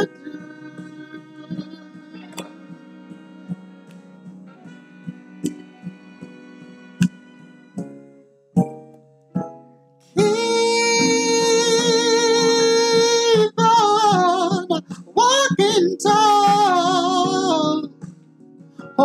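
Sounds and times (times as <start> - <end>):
person singing: 0.0 - 3.6, 10.2 - 18.0
acoustic guitar plucking: 0.0 - 19.0.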